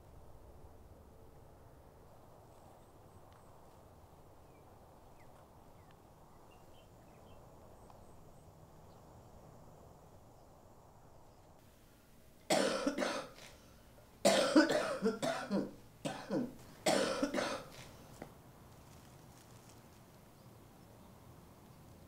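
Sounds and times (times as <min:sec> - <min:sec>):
person coughing: 0:12.5 - 0:13.5, 0:14.2 - 0:17.8.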